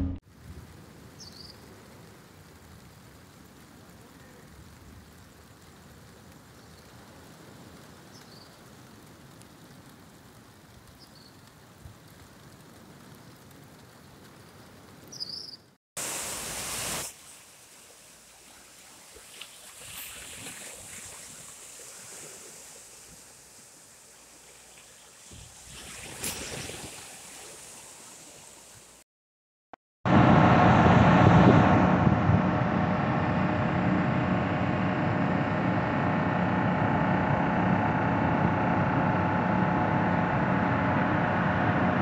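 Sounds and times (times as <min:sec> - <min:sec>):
water washing on shore: 0:16.0 - 0:29.0
loud rush of noise: 0:30.1 - 0:42.0.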